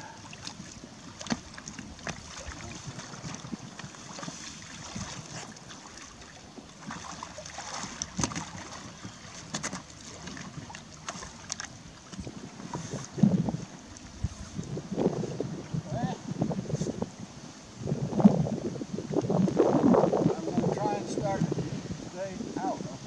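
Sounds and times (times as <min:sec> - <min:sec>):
water lapping: 0:00.0 - 0:23.0
wind buffeting microphone: 0:00.0 - 0:23.0
small splashes and knocks: 0:00.2 - 0:14.1.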